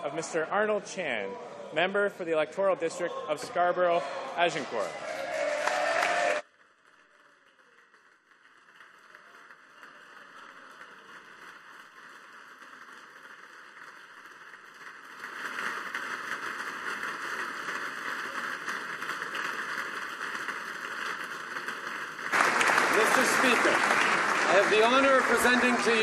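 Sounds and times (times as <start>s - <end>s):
crowd applause: 4.8s - 6.4s, 16.0s - 26.0s.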